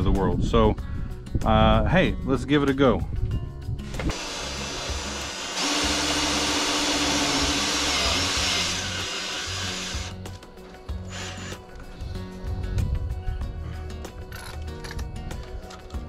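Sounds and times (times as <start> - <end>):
background music: 0.0 - 16.0
cordless drill whining: 3.9 - 10.2, 11.0 - 11.6.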